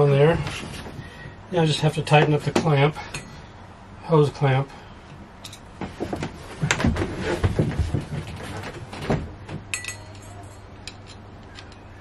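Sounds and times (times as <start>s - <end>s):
metal tool clink: 9.7s - 11.9s.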